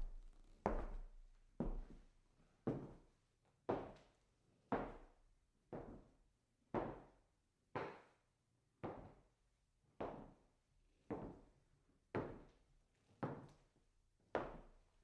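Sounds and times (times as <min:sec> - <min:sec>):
footsteps on wooden floor: 0:00.0 - 0:02.0.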